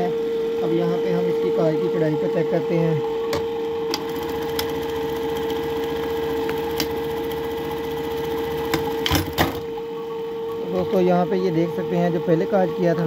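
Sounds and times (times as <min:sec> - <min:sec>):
sewing machine motor hum: 0:03.1 - 0:09.9
sewing machine stitching chatter: 0:04.0 - 0:09.6.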